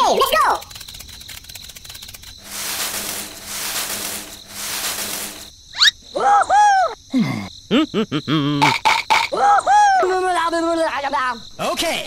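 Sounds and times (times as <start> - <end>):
soft hissing noise: 1.6 - 5.9.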